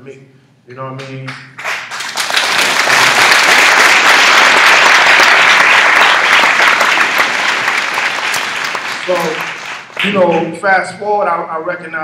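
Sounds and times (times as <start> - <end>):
audience applauding: 1.6 - 10.5.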